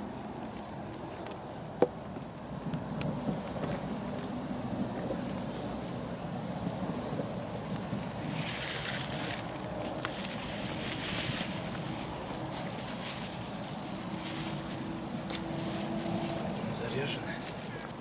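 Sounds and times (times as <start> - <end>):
plastic bags rustling: 8.0 - 18.0.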